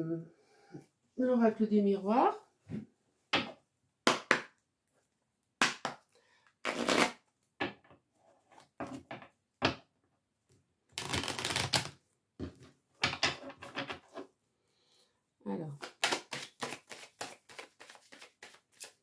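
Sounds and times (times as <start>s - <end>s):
cards being shuffled: 11.0s - 12.0s, 15.8s - 19.0s.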